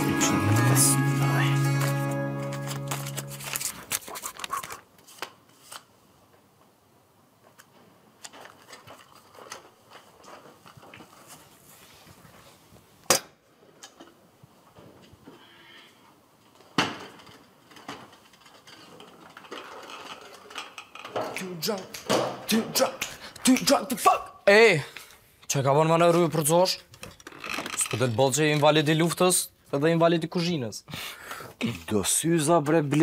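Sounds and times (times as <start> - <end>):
small clicks and rustles: 7.4 - 12.8, 16.5 - 21.2.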